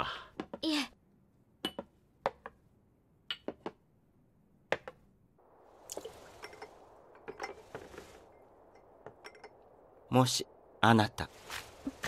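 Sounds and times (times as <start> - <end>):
running water: 5.4 - 10.5.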